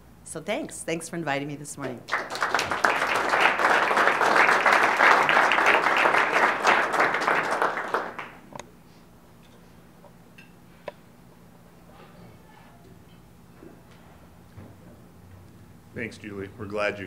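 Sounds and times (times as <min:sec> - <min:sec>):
audience applauding: 0:02.1 - 0:08.5.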